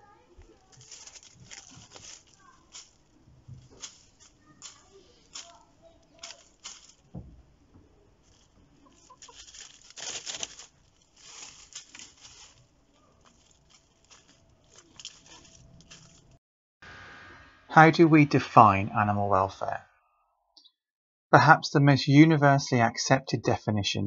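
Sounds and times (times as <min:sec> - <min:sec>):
hens scratching in dry leaves: 0:00.0 - 0:07.2, 0:08.0 - 0:16.4
hens clucking softly: 0:08.4 - 0:09.7.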